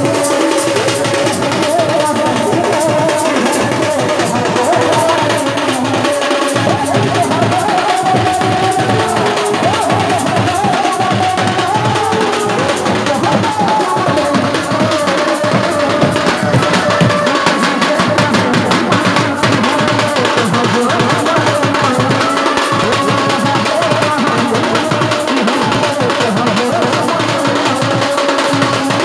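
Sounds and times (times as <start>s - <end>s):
dhol drums fast beat: 0.0s - 29.0s
wavering melody line: 14.2s - 20.2s.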